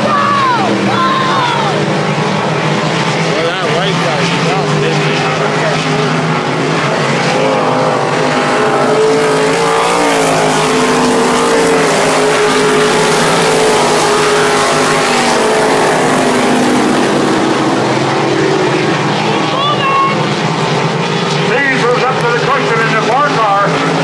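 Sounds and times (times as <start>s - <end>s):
race car engines droning: 0.0s - 24.0s.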